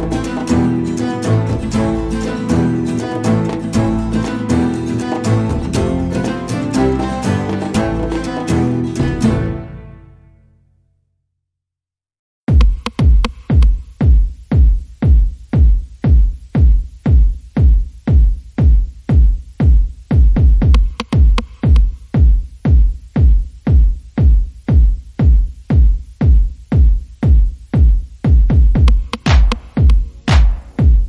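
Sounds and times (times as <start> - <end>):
electronic dance music: 0.0 - 10.0, 12.5 - 31.0.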